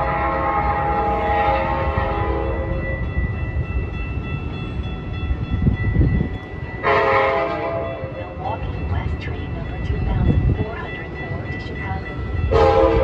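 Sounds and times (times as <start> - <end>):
locomotive air horn chord: 0.0 - 2.9, 6.8 - 8.0, 12.5 - 13.0
train rumble: 0.0 - 13.0.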